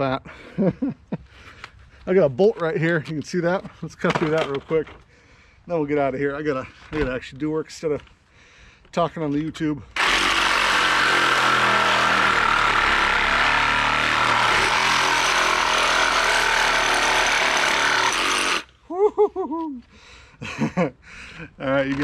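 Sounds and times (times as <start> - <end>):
reciprocating saw cutting metal bolt: 10.0 - 18.7.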